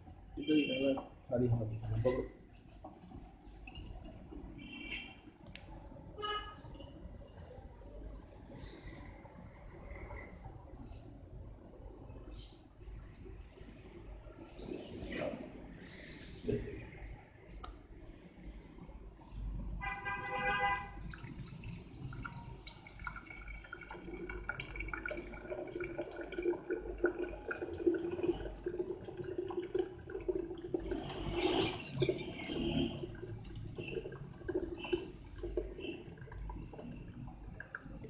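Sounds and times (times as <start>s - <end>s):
liquid pouring and splashing: 19.8s - 38.0s.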